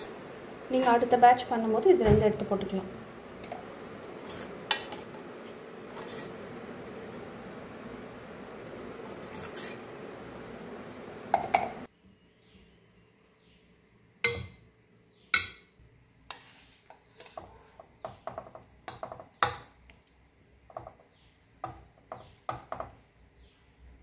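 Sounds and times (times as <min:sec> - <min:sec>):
spoon scraping steel jar: 0:04.1 - 0:06.4, 0:09.0 - 0:09.8.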